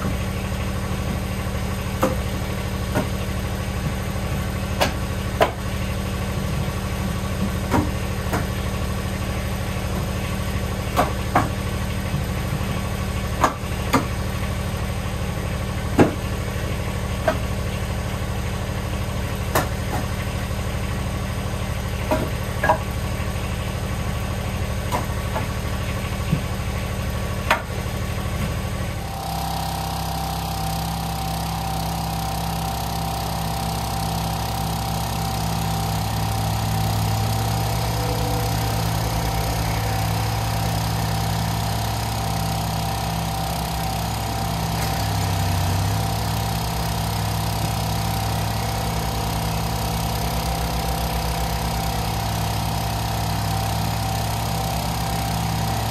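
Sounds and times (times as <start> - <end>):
log splitter engine whining: 0.0 - 55.9
tractor engine running: 0.0 - 55.9
firewood knocking onto a pile: 22.0 - 22.8.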